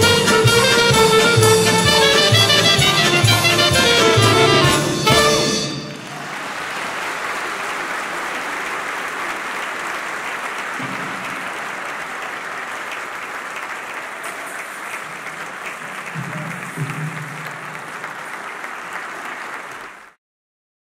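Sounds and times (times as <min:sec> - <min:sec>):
orchestra note: 0:00.0 - 0:06.2
audience applauding: 0:00.0 - 0:20.2.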